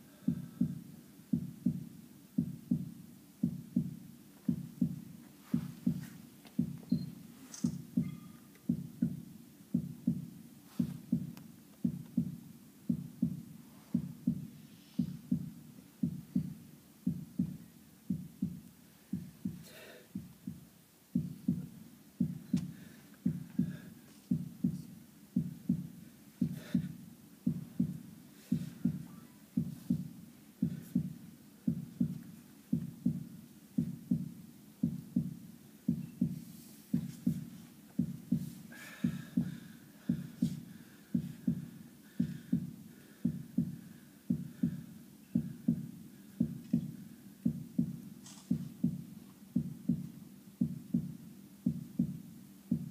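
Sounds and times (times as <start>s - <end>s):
heartbeat thumps: 0.0s - 52.9s.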